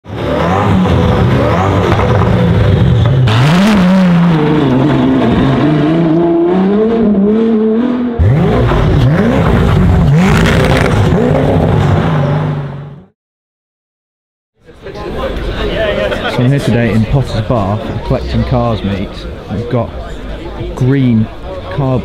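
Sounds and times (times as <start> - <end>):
supercar engines revving: 0.1 - 13.1.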